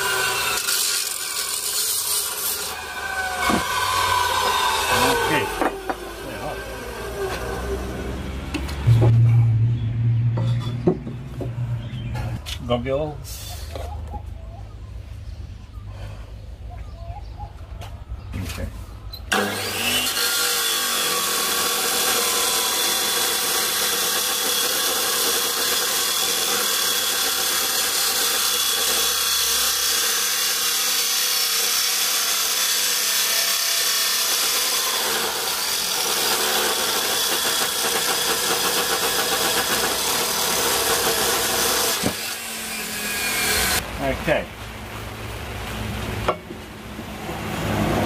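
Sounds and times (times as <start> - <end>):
angle grinder cutting steel: 0.0 - 8.9, 19.3 - 43.8
grinder winding down: 0.0 - 9.6, 19.3 - 43.8.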